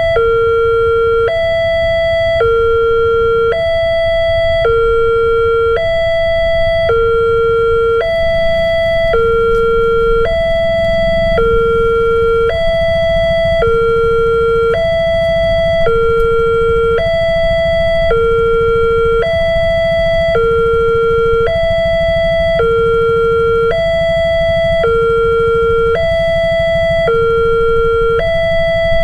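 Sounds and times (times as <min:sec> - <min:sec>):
level crossing two-tone alarm: 0:00.0 - 0:29.0
low rumble: 0:04.2 - 0:23.6.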